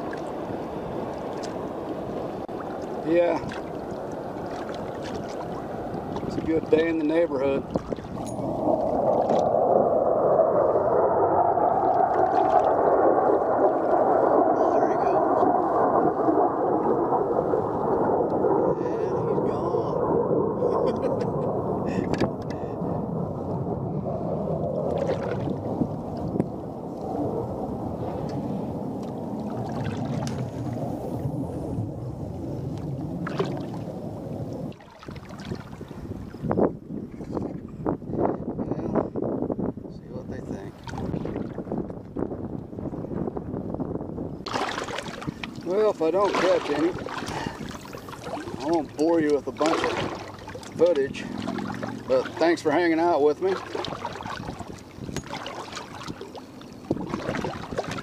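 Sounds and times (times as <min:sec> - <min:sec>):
water sloshing against pontoons: 0:00.0 - 0:09.5, 0:11.8 - 0:12.9, 0:24.9 - 0:26.3, 0:29.0 - 0:30.8, 0:33.2 - 0:33.9, 0:34.6 - 0:36.5, 0:40.5 - 0:41.7, 0:44.4 - 0:58.0
jet airplane passing overhead: 0:08.4 - 0:22.0.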